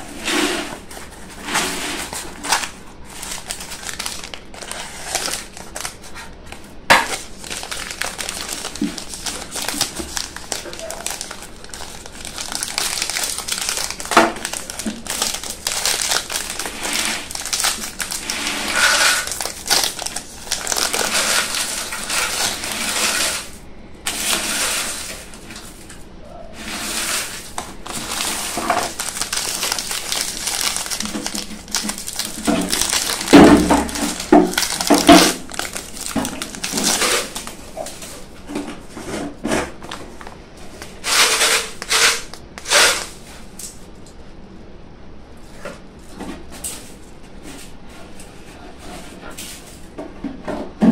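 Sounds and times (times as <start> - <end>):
plastic wrapper crinkling: 0.9 - 23.5, 27.2 - 38.2, 39.7 - 43.1.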